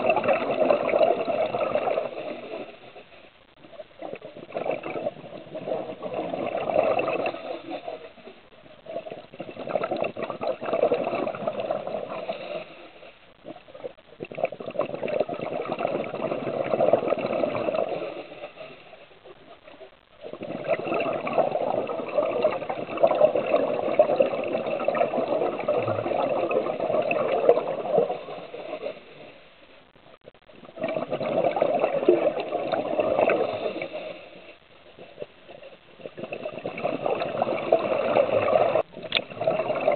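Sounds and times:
bubbling exhalations underwater: 0.0 - 2.8, 3.6 - 12.6, 13.4 - 18.7, 20.2 - 29.1, 30.5 - 34.2, 35.0 - 39.9.

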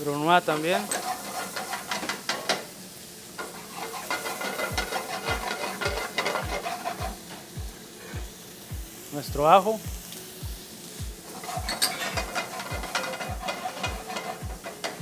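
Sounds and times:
food sizzling in a pan: 0.0 - 15.0
wooden spatula scraping pan: 0.8 - 2.7, 3.4 - 7.3, 11.3 - 15.0.

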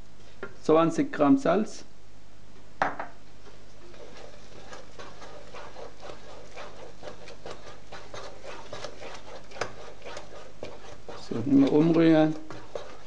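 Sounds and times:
wooden spoon stirring thick mash: 3.4 - 13.0.

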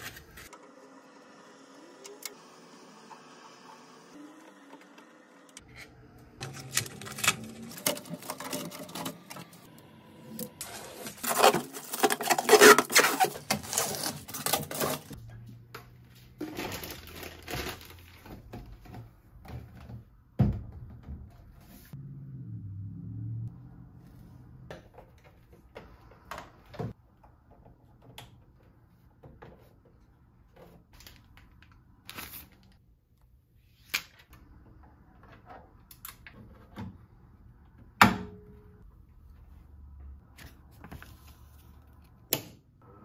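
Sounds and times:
packing material rustling: 6.4 - 9.6, 10.6 - 15.2, 16.4 - 18.3.

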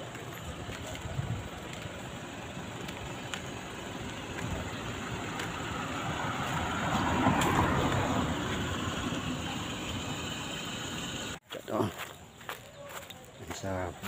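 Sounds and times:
car passing by: 4.5 - 10.5.

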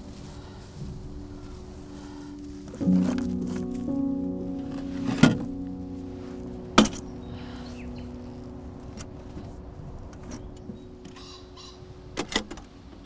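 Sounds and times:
low background music chord: 0.0 - 12.2.

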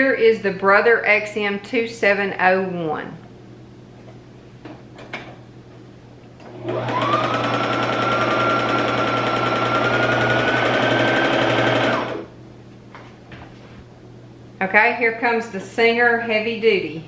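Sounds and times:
sewing machine motor whining: 6.5 - 12.3.

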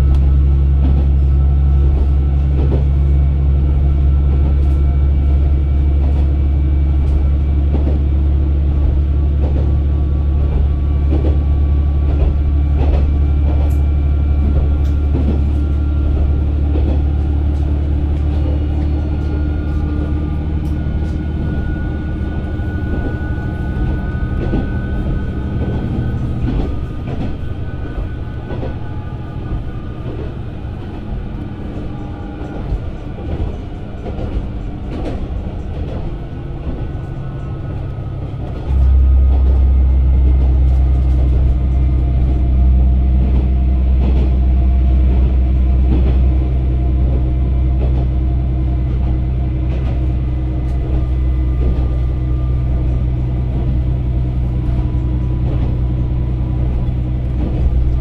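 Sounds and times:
railcar engine drone: 0.0 - 58.0.

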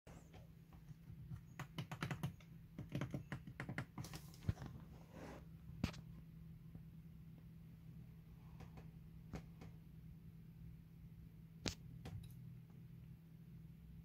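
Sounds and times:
steady low hum: 4.2 - 14.0.

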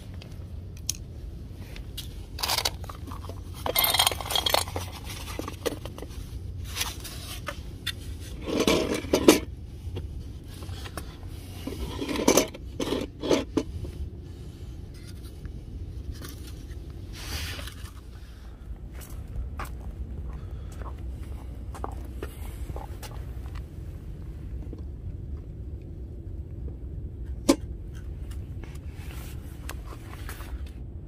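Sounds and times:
kibble rattling into metal bowl: 2.4 - 5.3
bowls scraping on concrete: 8.2 - 9.5, 10.8 - 13.6.

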